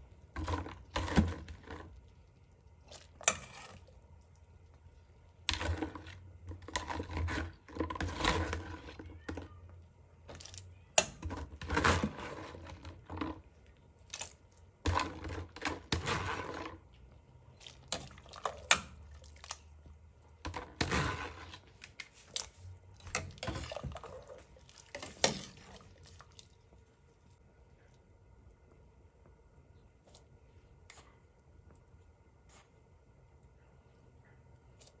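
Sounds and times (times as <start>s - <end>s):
liquid sloshing in a pot: 0.0s - 33.0s.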